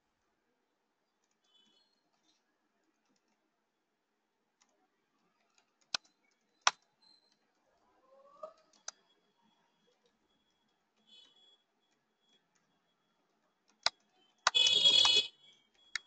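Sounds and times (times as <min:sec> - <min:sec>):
computer keyboard typing: 0:13.6 - 0:16.0.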